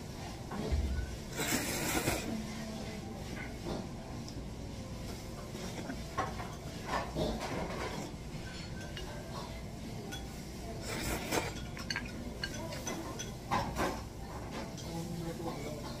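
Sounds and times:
noodles being slurped: 0:01.3 - 0:02.4
chopsticks clinking tableware: 0:06.1 - 0:14.0.

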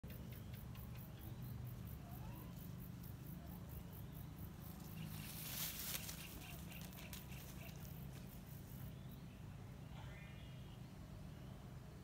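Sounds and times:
insects ticking: 0:00.0 - 0:09.3
grass rustling: 0:01.5 - 0:09.0.

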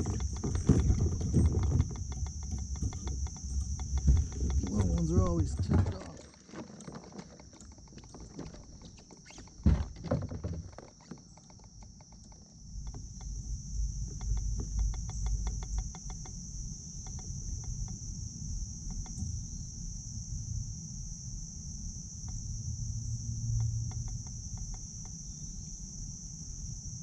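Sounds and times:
paddle knocking on kayak hull: 0:00.0 - 0:07.2
fast ticks: 0:00.0 - 0:09.6, 0:10.6 - 0:13.4, 0:14.1 - 0:16.4
high insect buzz: 0:00.0 - 0:27.0.

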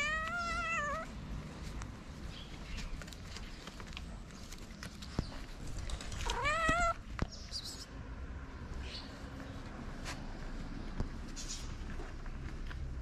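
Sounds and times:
cat meowing: 0:00.0 - 0:01.1, 0:06.2 - 0:07.1.

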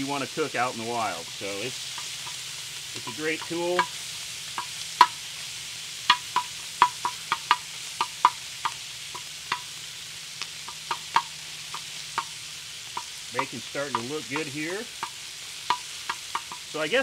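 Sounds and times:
bacon sizzling: 0:00.0 - 0:17.0
metal tongs clicking on pan: 0:10.6 - 0:12.4, 0:13.0 - 0:16.8.

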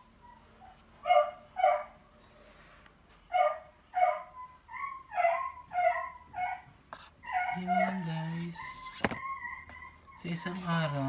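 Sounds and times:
dog barking: 0:01.0 - 0:02.0, 0:03.3 - 0:04.3.

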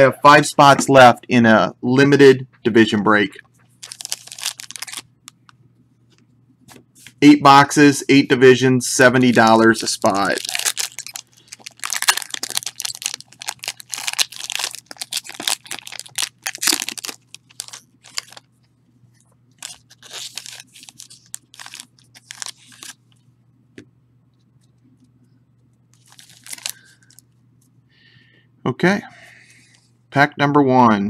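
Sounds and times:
foil pack crinkling: 0:03.8 - 0:05.4, 0:09.2 - 0:18.5, 0:19.6 - 0:23.1, 0:26.0 - 0:27.2.

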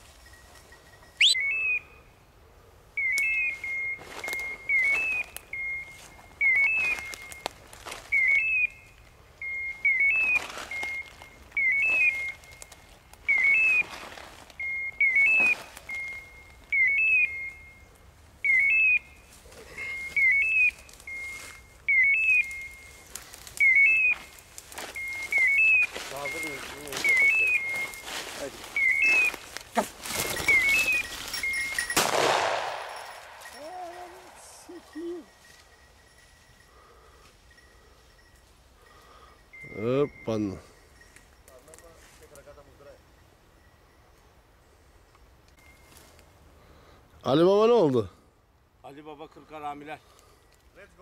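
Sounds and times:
beeper collar chirps and beeps: 0:01.0 - 0:02.0, 0:03.0 - 0:07.5, 0:08.1 - 0:14.0, 0:14.6 - 0:32.0, 0:39.5 - 0:44.3.

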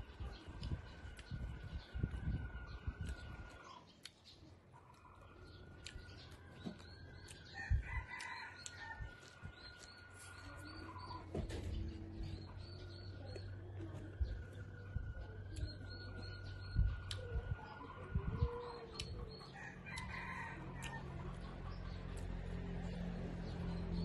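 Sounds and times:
chewing and mouth sounds: 0:00.4 - 0:02.2, 0:03.0 - 0:11.0, 0:12.3 - 0:17.5, 0:18.6 - 0:22.4
person chewing: 0:05.8 - 0:07.6, 0:08.3 - 0:10.7
rooster crowing: 0:07.4 - 0:09.3, 0:19.5 - 0:21.2.

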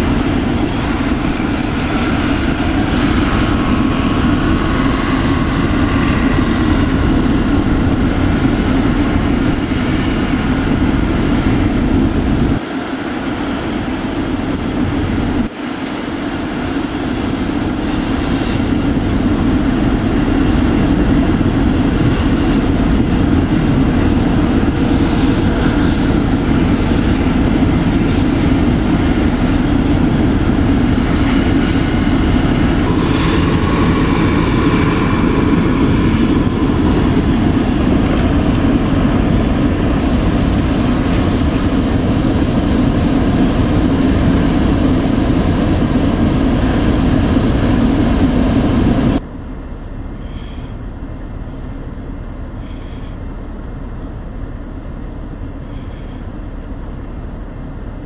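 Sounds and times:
blizzard wind: 0:00.0 - 0:58.0
faint whine: 0:00.0 - 0:58.0
low engine drone: 0:00.0 - 0:58.0.

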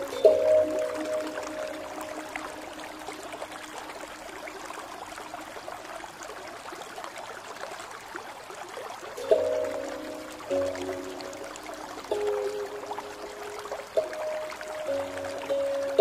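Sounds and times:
relaxation music: 0:00.0 - 0:05.2, 0:09.2 - 0:16.0
trickling water: 0:00.0 - 0:16.0.

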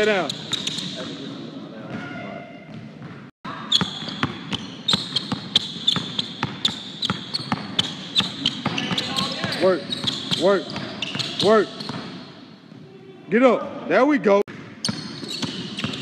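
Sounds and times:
basketball bouncing on hardwood floor: 0:03.8 - 0:12.2.

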